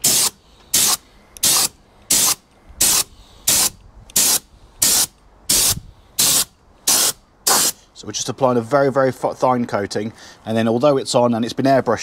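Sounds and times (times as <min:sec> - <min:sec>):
spray gun hissing bursts: 0:00.0 - 0:07.8.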